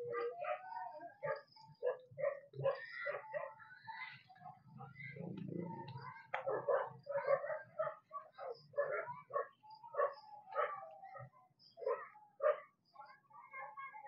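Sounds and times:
dog barking: 0:00.1 - 0:03.6, 0:06.3 - 0:12.8.

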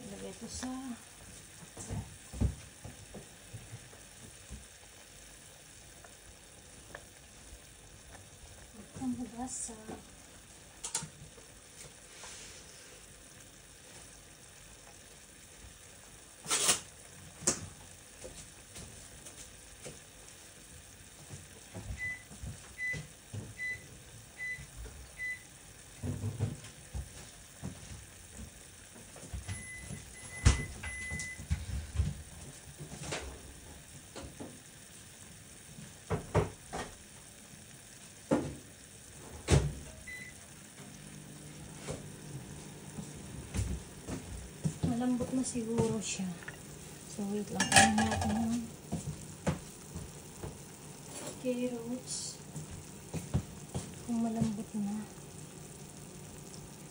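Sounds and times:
kitchen knocks and clatters: 0:47.6 - 0:49.6.

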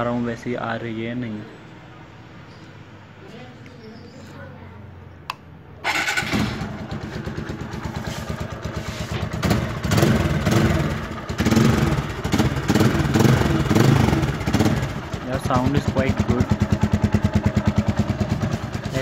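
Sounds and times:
motorcycle engine starting and revving: 0:05.8 - 0:19.0.

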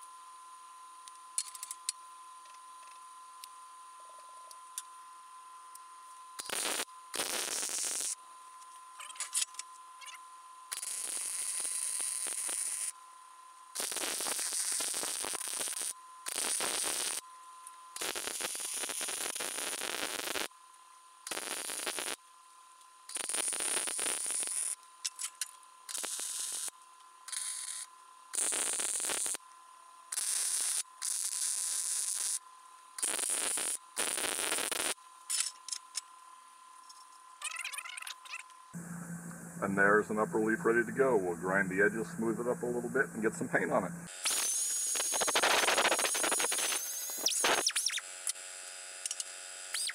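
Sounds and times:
welder crackling: 0:06.4 - 0:08.2, 0:10.8 - 0:12.9, 0:13.8 - 0:17.2, 0:18.0 - 0:20.5, 0:21.3 - 0:22.2, 0:23.1 - 0:24.8, 0:28.4 - 0:29.4, 0:33.0 - 0:35.0, 0:38.8 - 0:48.0.

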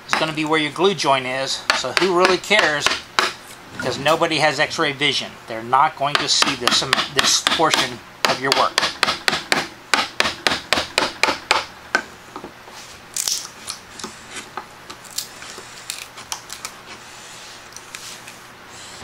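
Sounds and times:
chisel knocking into wood: 0:01.7 - 0:03.4, 0:06.1 - 0:11.7.

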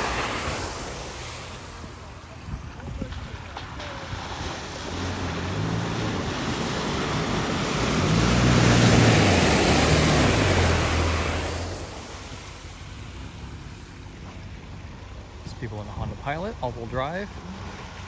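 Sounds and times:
tyres churning muddy water: 0:00.0 - 0:18.0
pickup engine revving: 0:04.2 - 0:12.3.

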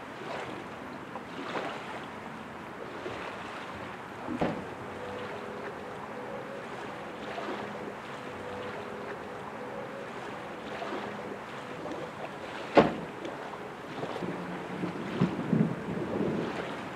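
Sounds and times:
wind: 0:00.0 - 0:16.9
faint hum: 0:03.8 - 0:16.4.

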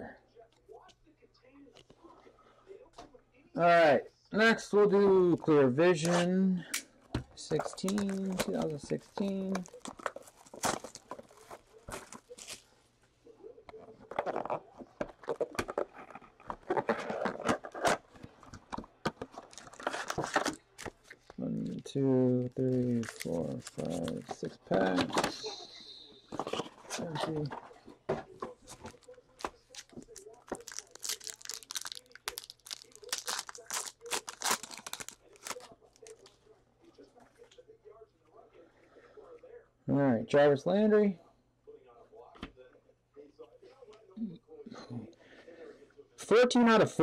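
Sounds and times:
cellophane wrapper crinkling: 0:07.5 - 0:12.7, 0:14.1 - 0:18.2, 0:19.0 - 0:24.8, 0:28.6 - 0:36.4.

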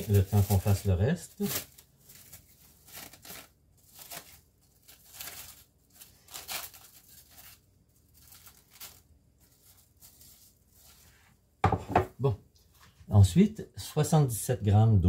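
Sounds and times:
plastic wrap crinkling: 0:00.0 - 0:11.4.

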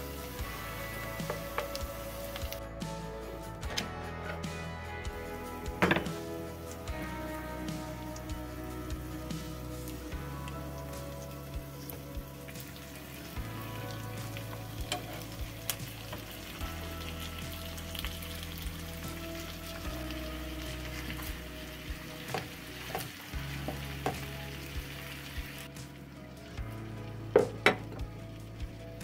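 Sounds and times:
chicken sizzling in a frying pan: 0:00.0 - 0:02.6, 0:05.7 - 0:29.0.

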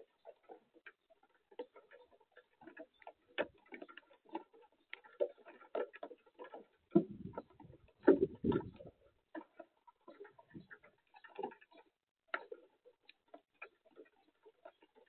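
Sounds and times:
light ticks and taps: 0:00.0 - 0:15.0.

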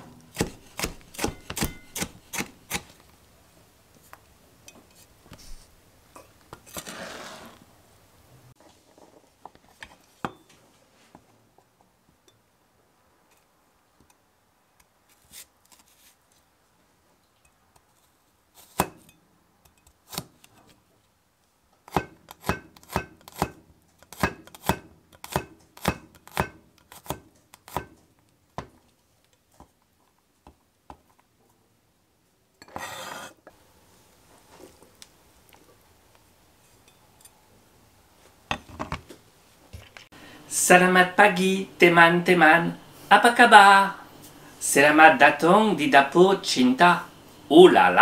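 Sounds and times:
knife chopping on cutting board: 0:00.3 - 0:02.9, 0:21.9 - 0:28.0.

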